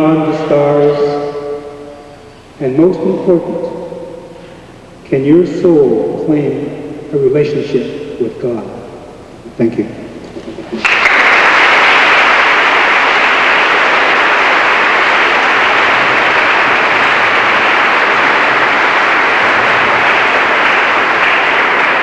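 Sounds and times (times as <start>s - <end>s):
audience applauding: 10.3s - 22.0s.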